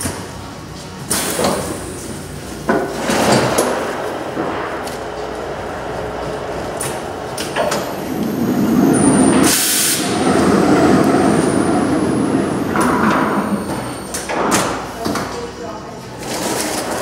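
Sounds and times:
loud hiss: 0:01.1 - 0:12.6
wrapping machine running: 0:16.2 - 0:17.0.

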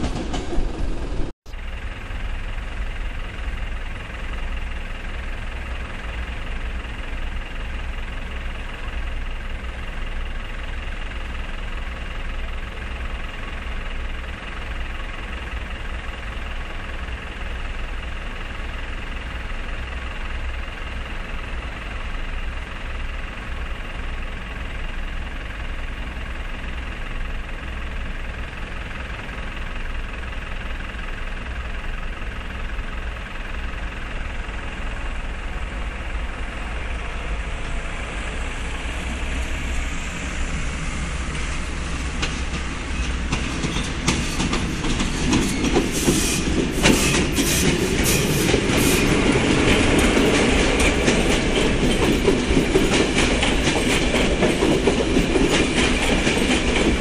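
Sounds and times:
train wheels clicking on rail joints: 0:00.0 - 0:01.3, 0:01.9 - 0:57.0
approaching train rumble: 0:00.0 - 0:57.0.

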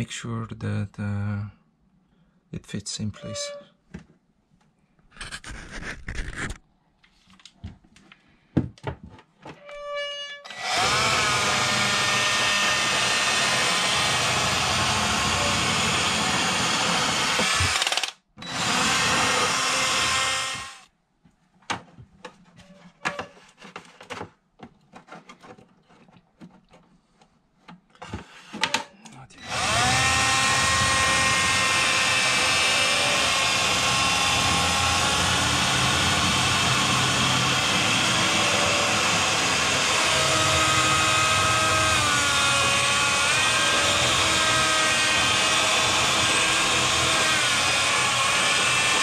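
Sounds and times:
cordless drill running: 0:10.5 - 0:20.9, 0:29.4 - 0:49.0.

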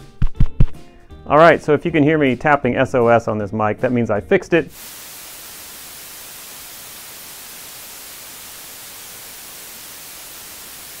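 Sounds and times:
television static hiss: 0:04.8 - 0:11.0.

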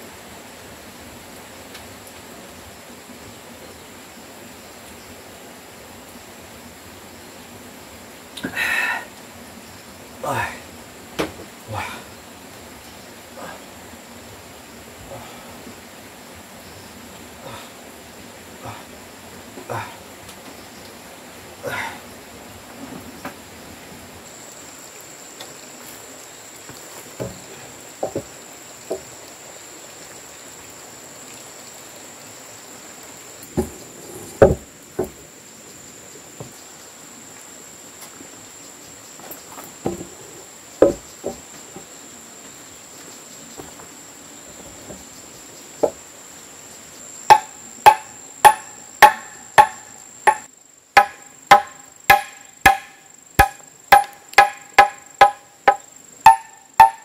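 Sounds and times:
high insect drone: 0:00.0 - 0:57.0
wooden knocks: 0:28.0 - 0:28.3, 0:33.6 - 0:35.2, 0:39.8 - 0:40.2, 0:40.8 - 0:41.9, 0:47.3 - 0:57.0
machete chopping wood: 0:47.3 - 0:57.0.

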